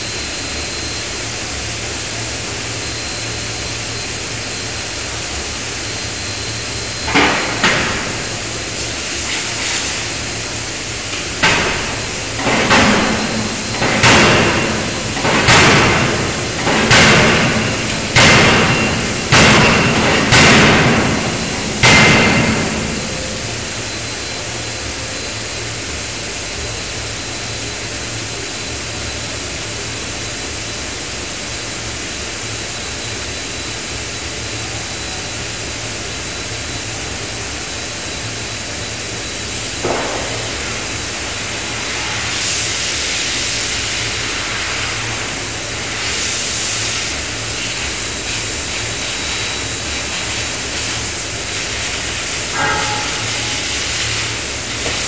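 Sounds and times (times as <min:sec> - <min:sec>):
hydraulic hum and hiss: 0:00.0 - 0:55.0
forging hammer banging on steel: 0:52.6 - 0:53.7.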